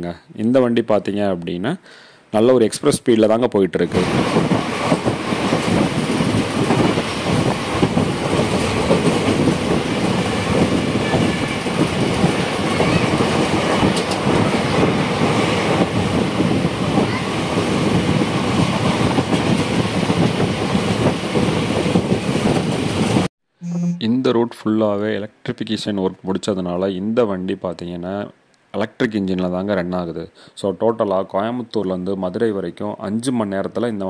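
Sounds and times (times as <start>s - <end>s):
train wheels running on track: 3.9s - 23.3s.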